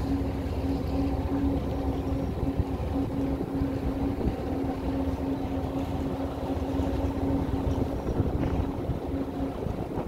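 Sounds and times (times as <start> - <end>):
boat engine humming: 0.0 - 10.0
boat wake washing: 0.0 - 10.0
wind on microphone: 1.3 - 5.0, 6.8 - 10.0.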